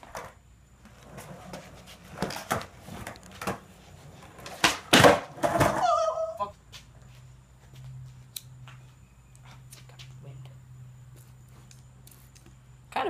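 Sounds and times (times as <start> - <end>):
skateboard knocking on concrete: 0.0 - 6.8.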